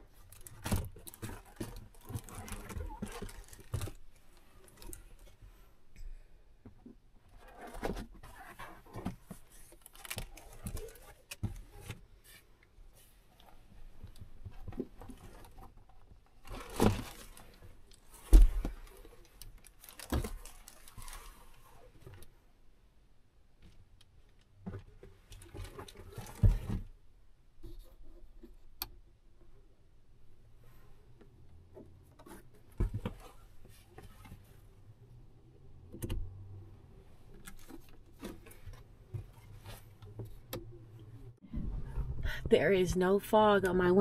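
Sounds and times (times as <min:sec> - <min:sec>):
rustling bedding and clothing: 0:00.0 - 0:05.9, 0:07.2 - 0:22.4, 0:37.0 - 0:42.6.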